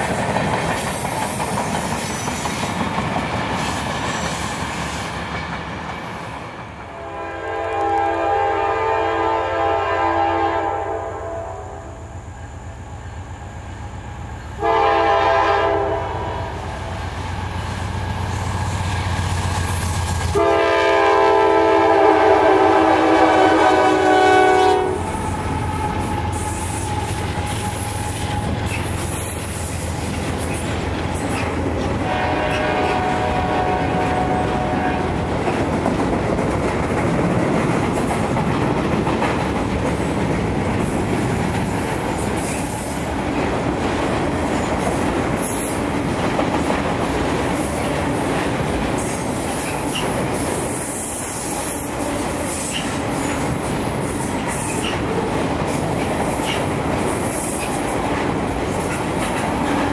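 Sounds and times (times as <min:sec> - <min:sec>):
train rumbling: 0:00.0 - 0:59.9
locomotive air horn blasts: 0:06.9 - 0:12.0, 0:14.6 - 0:16.8, 0:20.3 - 0:28.5, 0:32.0 - 0:35.2.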